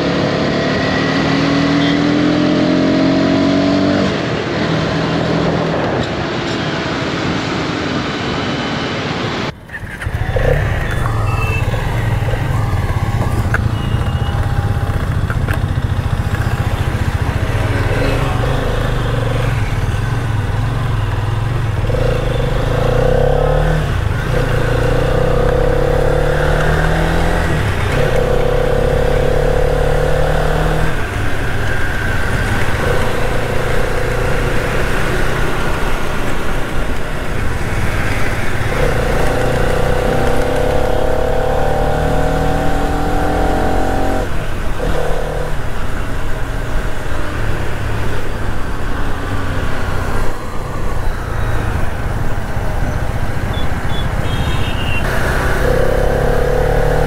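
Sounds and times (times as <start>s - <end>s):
motorcycle engine accelerating: 9.6s - 47.0s, 55.0s - 57.0s.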